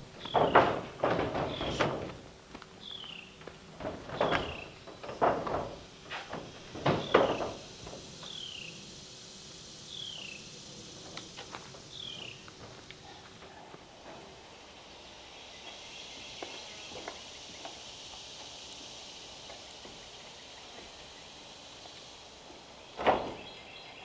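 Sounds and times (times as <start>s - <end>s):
knocks on metal roof panels: 0.2s - 2.3s, 3.7s - 8.2s, 23.0s - 23.4s.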